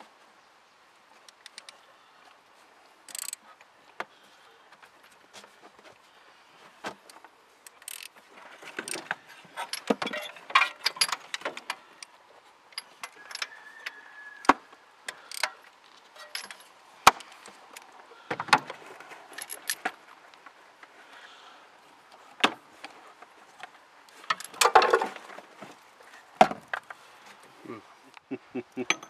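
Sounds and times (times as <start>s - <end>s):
metal tools clinking: 7.7s - 11.9s, 15.2s - 17.5s, 19.3s - 19.9s, 24.2s - 25.0s.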